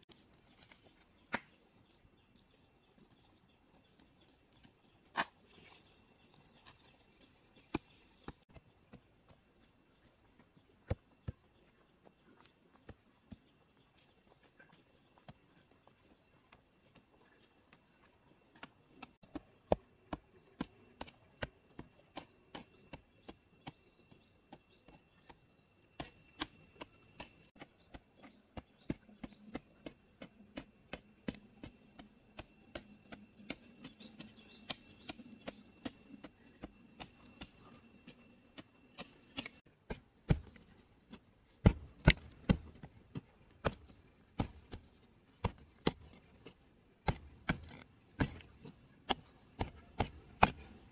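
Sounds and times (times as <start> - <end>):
hoe chopping into soil: 38.6 - 40.8, 41.5 - 46.2, 47.0 - 50.9.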